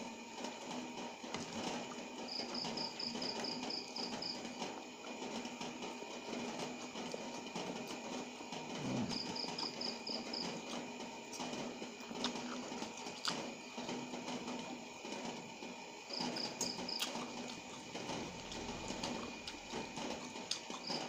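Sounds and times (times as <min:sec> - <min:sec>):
insect chirping: 0:02.3 - 0:04.4, 0:09.1 - 0:10.6, 0:16.1 - 0:17.3
noodles slurped and chewed: 0:10.6 - 0:13.5.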